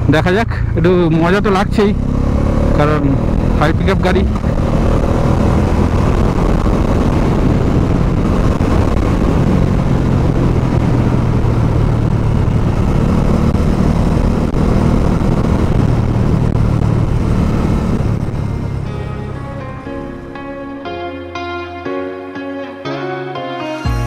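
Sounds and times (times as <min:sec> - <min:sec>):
motorcycle engine running: 0:00.0 - 0:20.9
road and wind noise: 0:00.0 - 0:23.0.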